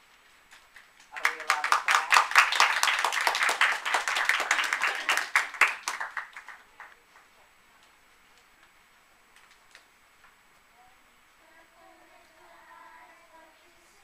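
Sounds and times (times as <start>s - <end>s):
audience applauding: 0.7s - 7.3s.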